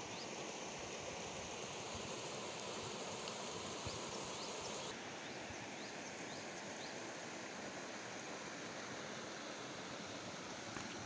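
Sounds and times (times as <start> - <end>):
stream water pouring over rock: 1.1 - 4.9.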